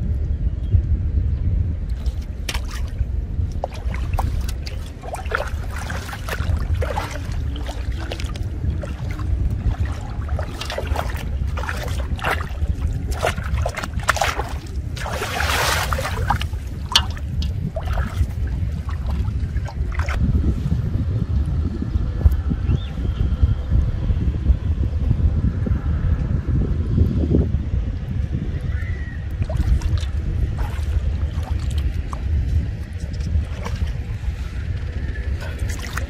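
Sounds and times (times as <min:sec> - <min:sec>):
wind buffeting microphone: 0:00.0 - 0:36.0
water splashing and dripping: 0:01.9 - 0:20.2, 0:29.3 - 0:34.5, 0:35.4 - 0:36.0
big splash: 0:03.6 - 0:19.1.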